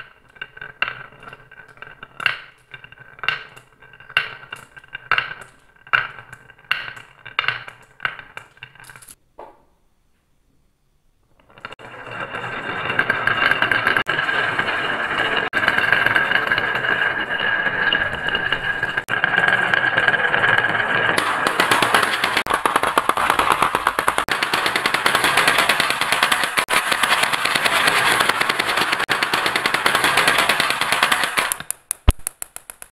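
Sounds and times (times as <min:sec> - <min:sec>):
marbles rolling on wood: 0:00.0 - 0:09.2, 0:11.3 - 0:32.9
marbles clattering into plastic: 0:17.9 - 0:32.9.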